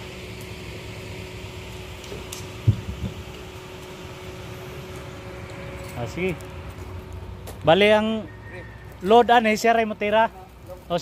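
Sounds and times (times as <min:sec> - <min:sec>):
steady low hum: 0:00.0 - 0:09.0
loud thump: 0:02.6 - 0:03.2.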